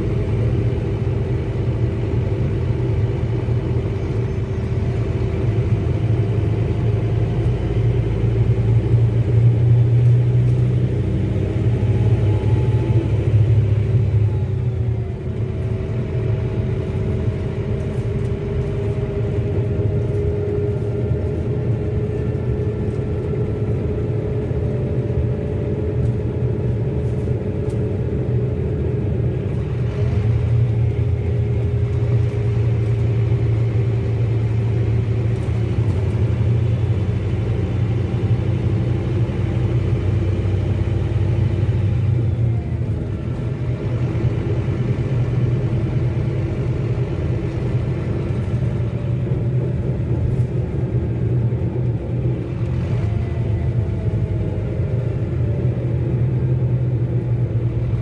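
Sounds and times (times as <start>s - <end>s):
bus diesel engine drone: 0.0s - 58.0s.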